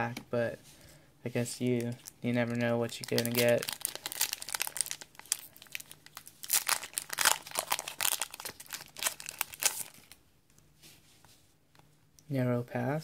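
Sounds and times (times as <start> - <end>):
foil wrapper crinkling: 1.8 - 10.2.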